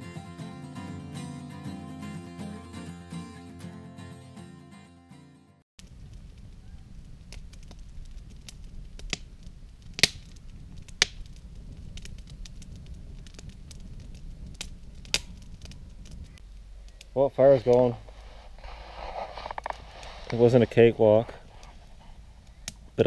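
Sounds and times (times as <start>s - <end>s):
campfire crackling and popping: 5.8s - 23.0s
low fire rumble: 5.8s - 23.0s.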